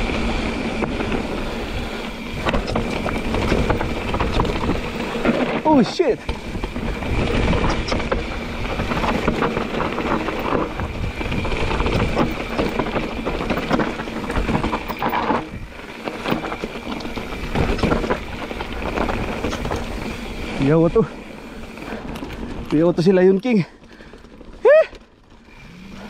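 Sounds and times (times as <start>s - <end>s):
wind rumble on microphone: 0.0s - 20.7s
bike rattling and knocking: 0.0s - 26.0s
bike tyres crunching over stones: 0.0s - 26.0s.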